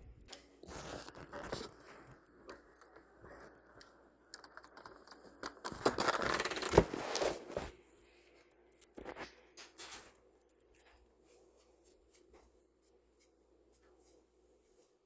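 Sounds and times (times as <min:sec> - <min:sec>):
scratching and rubbing on microphone: 0:00.6 - 0:02.4.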